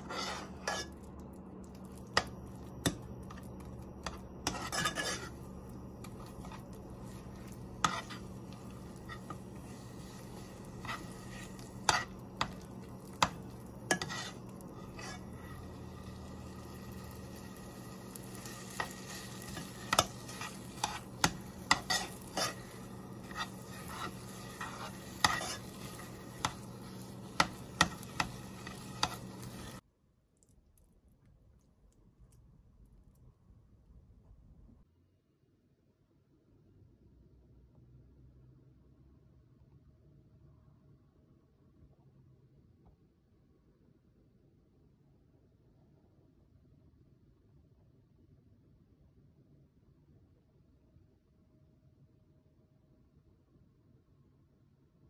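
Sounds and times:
metal utensil scraping pot: 0:00.0 - 0:01.1, 0:01.7 - 0:29.8
soft sizzle: 0:00.0 - 0:29.8
steady low hum: 0:00.0 - 0:29.8.

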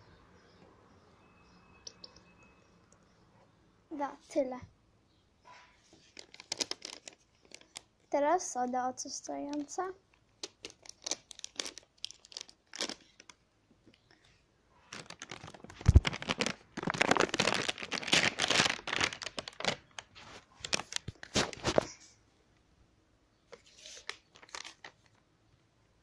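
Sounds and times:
paper sachet crinkling and tearing: 0:06.0 - 0:07.9, 0:10.4 - 0:13.4, 0:14.9 - 0:22.0, 0:23.6 - 0:25.2.

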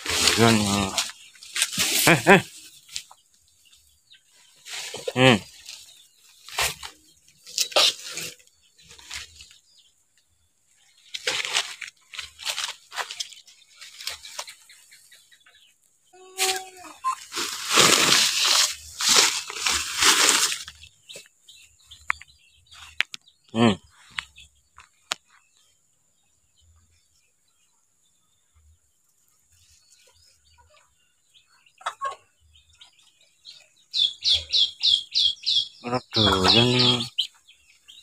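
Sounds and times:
animal call: 0:00.0 - 0:01.1, 0:34.0 - 0:37.3
plastic sack rustling: 0:00.0 - 0:02.4, 0:11.1 - 0:14.2, 0:16.4 - 0:20.9
leaves rustling: 0:00.0 - 0:03.1, 0:04.3 - 0:09.6, 0:10.9 - 0:14.8, 0:16.2 - 0:21.3, 0:36.2 - 0:37.3.

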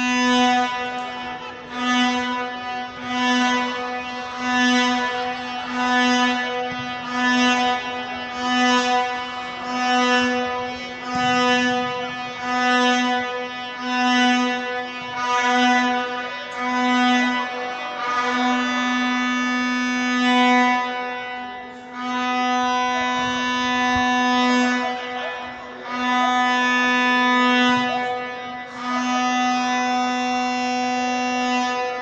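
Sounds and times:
plastic horn blasts: 0:00.0 - 0:32.0.

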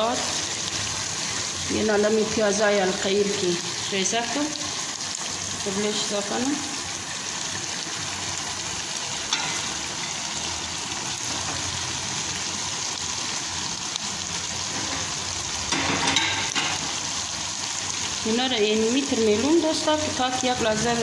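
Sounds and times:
sauce sizzling in a pot: 0:00.0 - 0:21.0.

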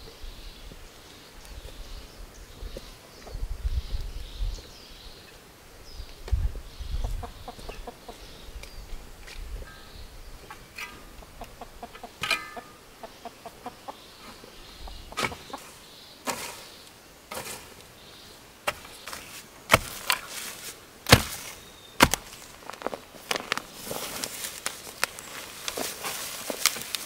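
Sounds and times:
loose dirt scattering: 0:12.0 - 0:12.8, 0:15.1 - 0:27.0
hoe chopping into dry soil: 0:15.1 - 0:16.7, 0:17.3 - 0:17.8, 0:18.6 - 0:27.0.

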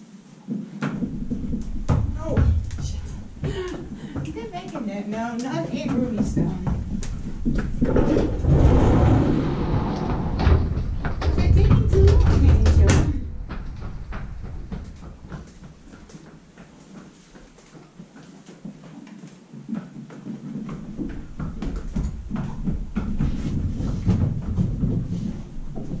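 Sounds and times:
horse hooves clopping on pavement: 0:00.5 - 0:26.0
stall door sliding shut: 0:07.9 - 0:13.0.

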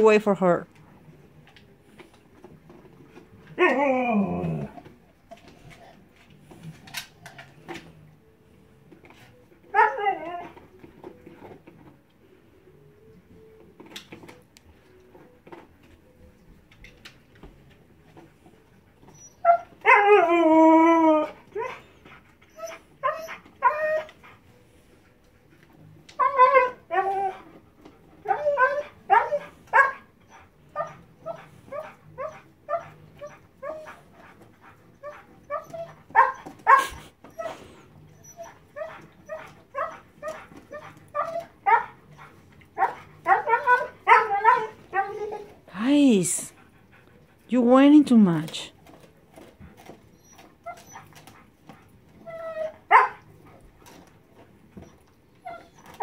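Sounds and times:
dog whining and yipping: 0:03.4 - 0:04.9, 0:09.2 - 0:11.6, 0:18.6 - 0:24.4, 0:26.1 - 0:45.7, 0:48.3 - 0:56.0.

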